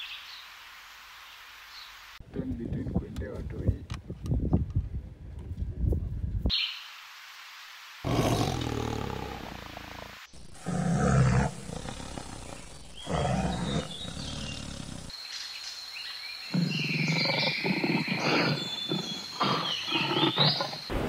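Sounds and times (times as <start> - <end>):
big cats roaring and growling: 8.0 - 15.1, 16.5 - 20.9.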